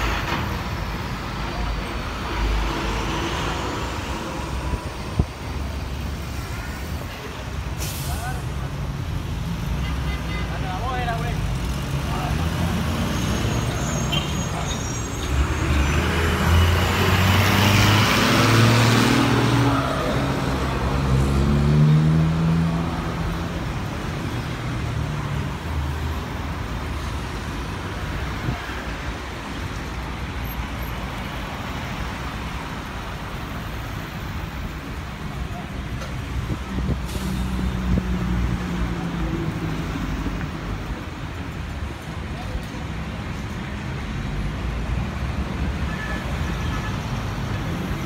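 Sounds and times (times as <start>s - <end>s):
steady traffic rumble: 0.0s - 48.0s
vehicle accelerating past: 15.6s - 23.0s.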